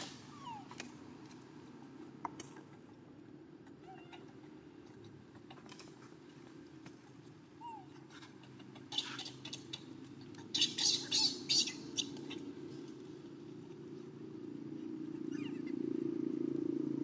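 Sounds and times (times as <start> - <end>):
monkey squeak: 7.6 - 7.9, 8.9 - 9.8, 10.5 - 12.2.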